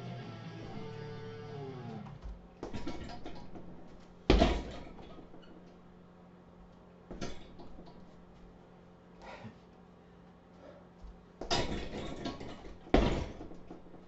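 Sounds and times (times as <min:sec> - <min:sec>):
kicks thudding on punching bag: 0:02.2 - 0:05.4, 0:11.4 - 0:14.0.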